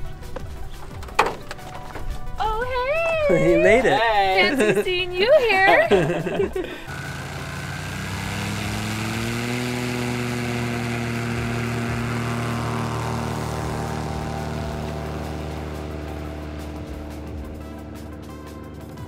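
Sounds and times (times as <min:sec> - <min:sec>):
propeller plane engine at full power: 0:05.8 - 0:19.0.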